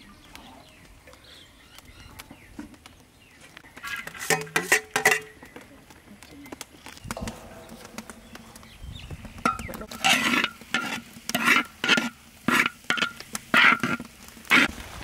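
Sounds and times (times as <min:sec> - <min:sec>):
metal spatula scraping a wok: 0:03.8 - 0:05.4, 0:07.2 - 0:14.7.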